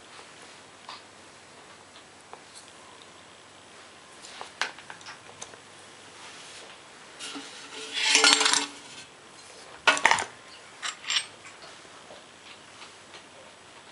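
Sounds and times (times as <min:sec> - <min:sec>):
metal clanking and clattering: 0:07.2 - 0:09.1.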